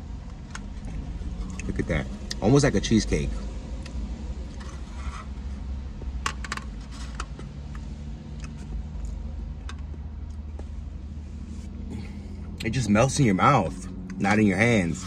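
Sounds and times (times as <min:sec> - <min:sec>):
low rumble: 0:00.0 - 0:12.9
person chewing: 0:00.8 - 0:01.7, 0:08.3 - 0:09.2.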